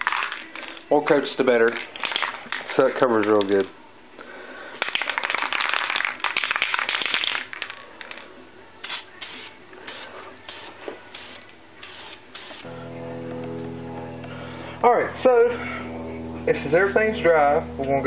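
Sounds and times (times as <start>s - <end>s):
spray can rattling: 0.0s - 0.9s, 1.6s - 3.6s, 4.8s - 12.7s
aerosol spraying: 8.8s - 12.7s.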